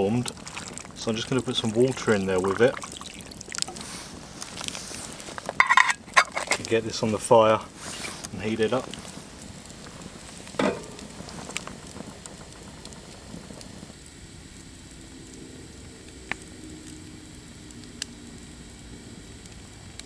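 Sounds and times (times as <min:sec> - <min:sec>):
campfire crackling and popping: 0:00.0 - 0:20.0
metal pot clanking on grill: 0:05.5 - 0:06.7, 0:10.6 - 0:11.1.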